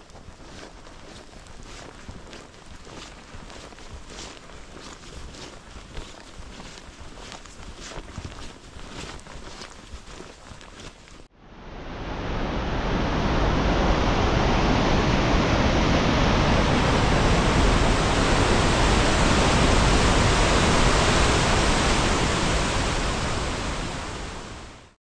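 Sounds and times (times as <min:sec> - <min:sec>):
fast-flowing water rushing: 0:11.8 - 0:24.7.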